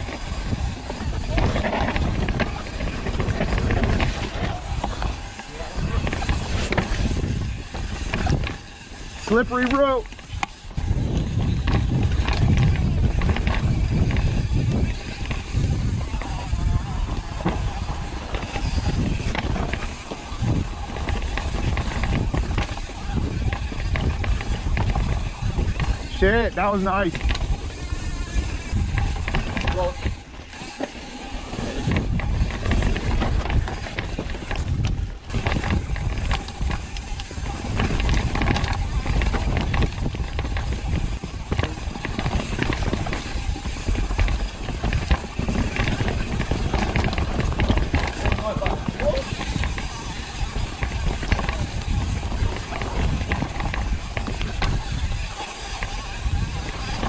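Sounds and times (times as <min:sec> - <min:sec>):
bike clicks and rattles: 0:00.0 - 0:57.0
tyres rumbling on dirt: 0:00.0 - 0:57.0
wind noise: 0:00.0 - 0:57.0.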